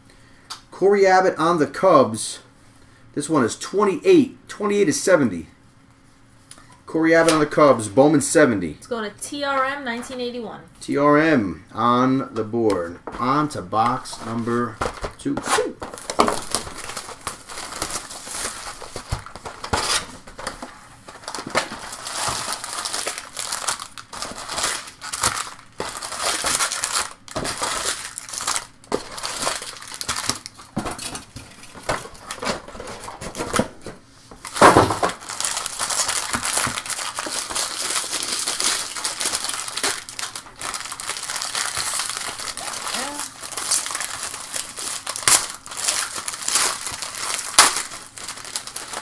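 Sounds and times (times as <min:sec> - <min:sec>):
plastic and foil packaging crinkling: 0:12.8 - 0:49.0.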